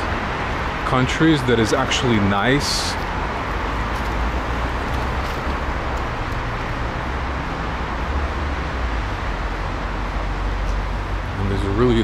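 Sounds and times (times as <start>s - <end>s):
road traffic hiss and rumble: 0.0s - 12.0s.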